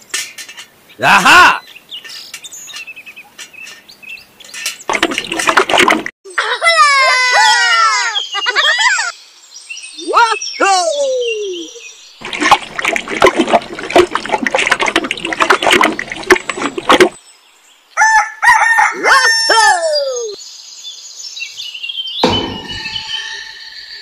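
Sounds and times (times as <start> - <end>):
water splashing from a bucket: 4.9 - 6.1, 12.2 - 17.2
high gliding tones: 22.2 - 24.0.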